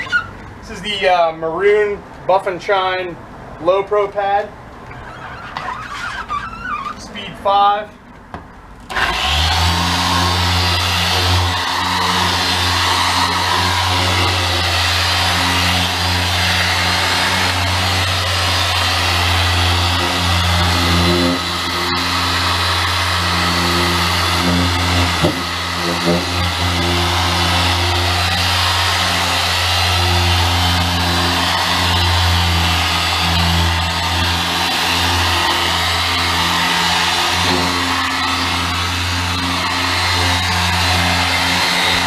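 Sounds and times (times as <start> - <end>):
polisher motor humming: 8.9 - 42.0.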